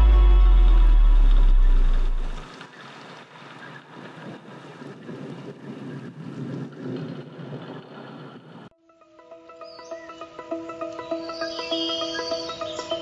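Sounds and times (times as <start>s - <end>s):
background music: 0.0s - 2.4s, 8.8s - 13.0s.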